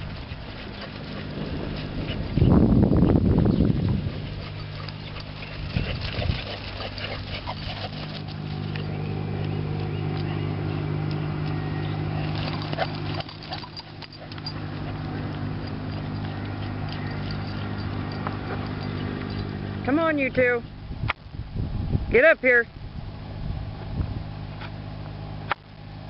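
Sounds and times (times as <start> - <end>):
dogs running on grass: 0.0 - 20.6
steady low hum: 0.0 - 26.0.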